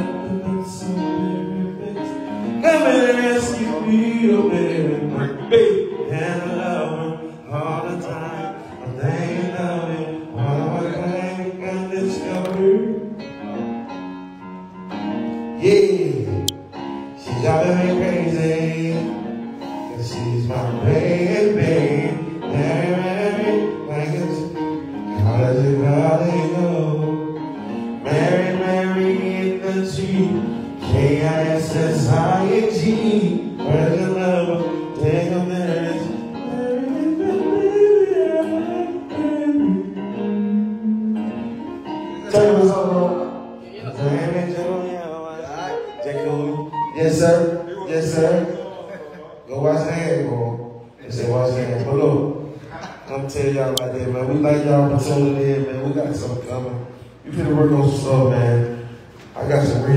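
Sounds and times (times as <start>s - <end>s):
man singing into microphone: 0.0s - 13.7s, 17.1s - 48.6s
music: 0.0s - 59.9s.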